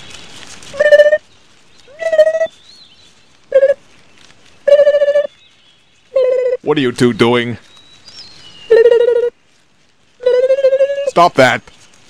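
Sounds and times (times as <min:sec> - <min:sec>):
high-pitched cartoon voice calls: 0:00.8 - 0:01.2, 0:10.2 - 0:11.2.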